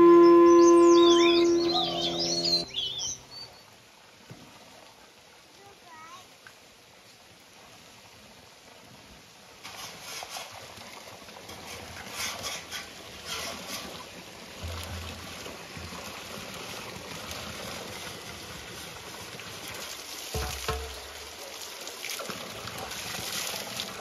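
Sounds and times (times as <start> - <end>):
water splashing onto stones: 9.4 - 24.0.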